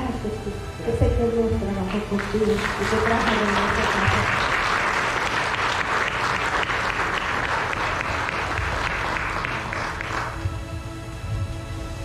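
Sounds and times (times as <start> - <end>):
crowd clapping: 1.9 - 10.7.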